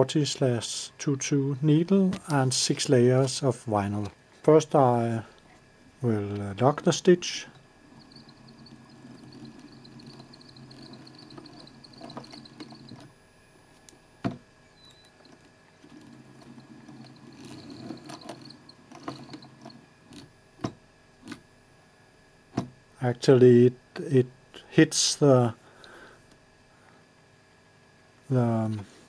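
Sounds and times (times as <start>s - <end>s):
faint motor hum: 0.0s - 29.0s
sewing machine running slowly: 7.5s - 13.2s, 14.8s - 20.3s.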